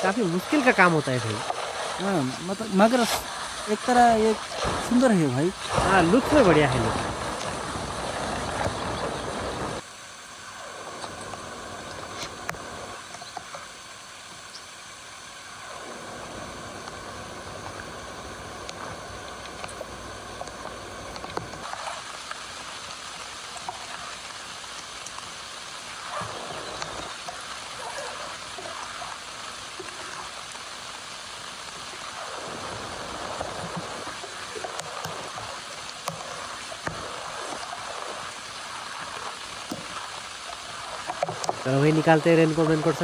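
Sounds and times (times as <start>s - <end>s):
heavy rain: 0.0s - 9.8s, 21.5s - 43.0s.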